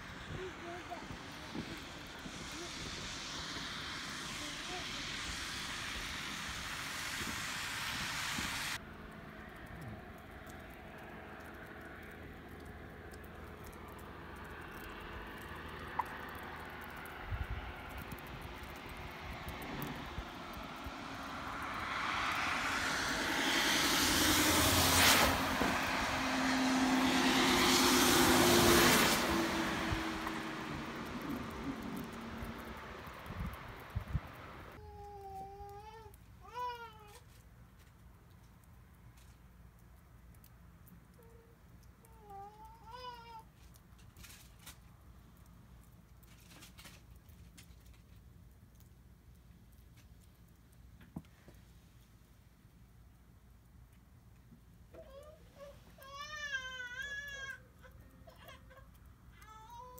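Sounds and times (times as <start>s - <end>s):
rushing noise: 0.0s - 8.8s, 15.3s - 34.8s
passing vehicle engine: 0.0s - 34.8s.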